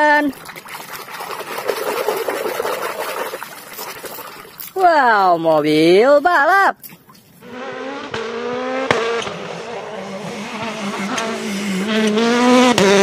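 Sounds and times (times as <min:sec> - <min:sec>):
rally car engine accelerating: 0:07.4 - 0:13.0.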